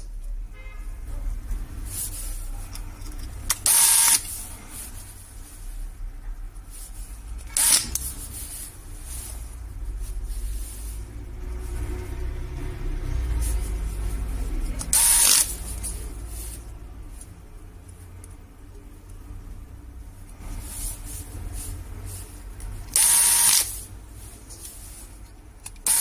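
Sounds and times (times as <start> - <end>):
electric screwdriver motor humming: 3.5 - 4.2, 7.6 - 8.0, 15.0 - 15.5, 22.9 - 23.7.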